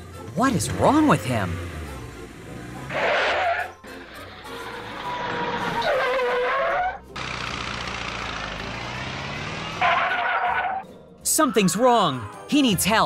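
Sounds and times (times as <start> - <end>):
car engine: 0.0 - 10.9
tyre squeal: 2.9 - 7.0, 9.6 - 10.8.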